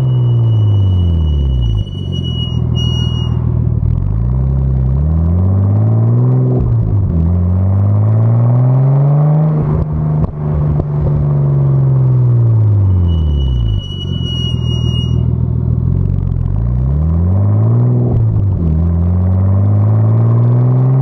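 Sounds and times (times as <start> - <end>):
car exhaust revving: 0.0 - 21.0
exhaust pops and crackles: 9.7 - 11.2.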